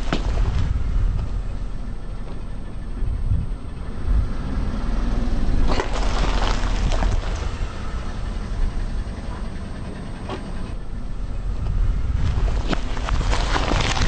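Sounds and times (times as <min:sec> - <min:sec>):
tyre crushing cacti: 0:00.0 - 0:01.2, 0:05.6 - 0:07.6, 0:12.2 - 0:14.0
car low rumble: 0:00.0 - 0:14.0.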